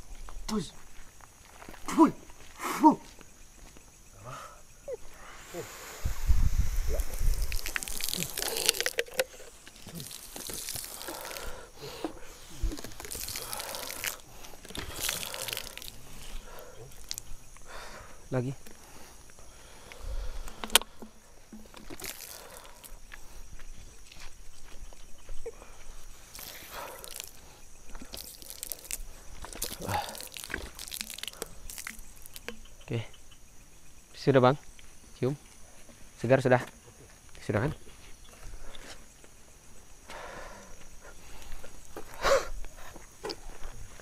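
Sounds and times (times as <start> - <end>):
night insects chirring: 0.0 - 44.0
water splashing onto asphalt: 7.3 - 9.2, 9.8 - 11.5, 12.8 - 16.0, 21.8 - 22.7, 28.1 - 32.4.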